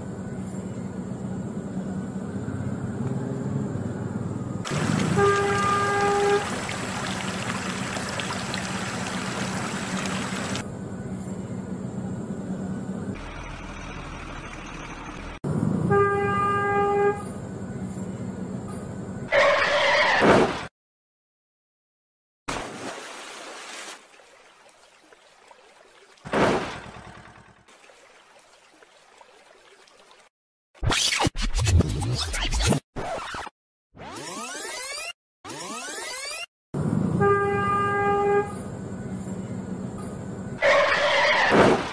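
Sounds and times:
muddy water splashing: 0:04.6 - 0:10.6, 0:22.5 - 0:30.3
toy splashing in puddle: 0:04.7 - 0:10.6.

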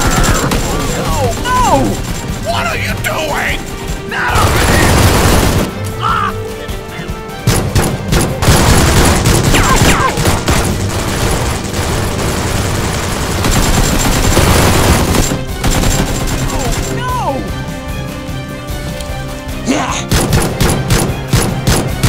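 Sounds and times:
rapid gunfire: 0:00.0 - 0:05.8, 0:07.4 - 0:17.1, 0:20.1 - 0:22.0
background music: 0:00.0 - 0:22.0.

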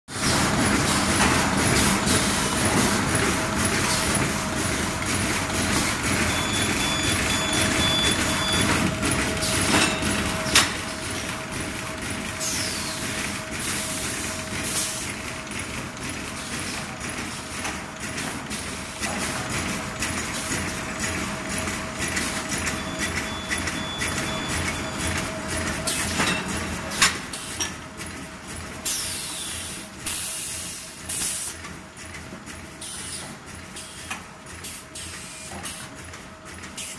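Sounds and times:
machine clattering: 0:00.2 - 0:29.7
constant machine tone: 0:00.2 - 0:36.9
pneumatic air hisses: 0:28.9 - 0:31.6.

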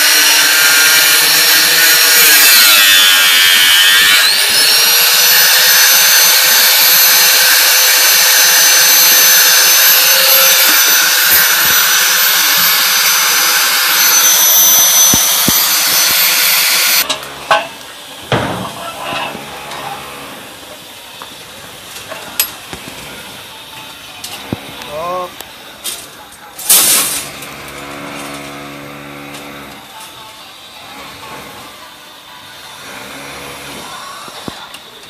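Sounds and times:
power tool motor whining: 0:00.0 - 0:17.6, 0:27.3 - 0:29.8.

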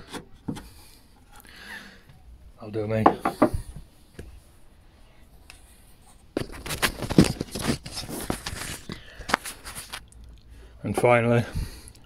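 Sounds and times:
rustling knocks and scrapes: 0:06.0 - 0:10.0.

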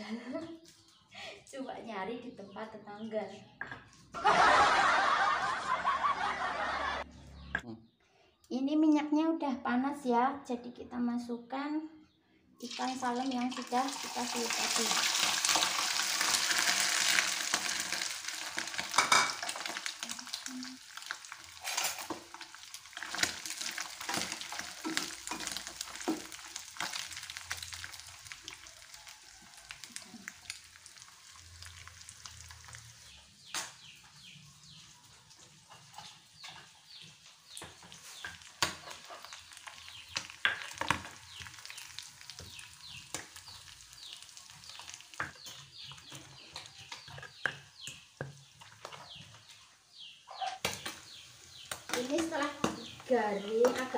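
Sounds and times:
fish sizzling in hot oil: 0:12.6 - 0:49.3, 0:50.6 - 0:53.9
oil crackling and popping: 0:12.6 - 0:49.6, 0:50.6 - 0:53.9.

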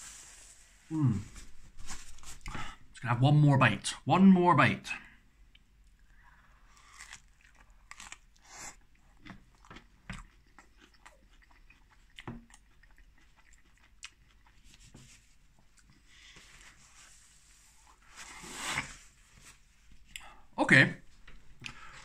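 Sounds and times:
man chewing crunchy pizza: 0:06.4 - 0:16.3.

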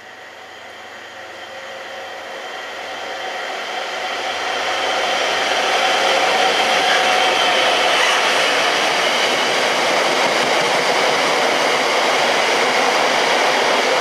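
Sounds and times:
diesel locomotive engine: 0:00.0 - 0:14.0
wheels on rails: 0:02.7 - 0:14.0.

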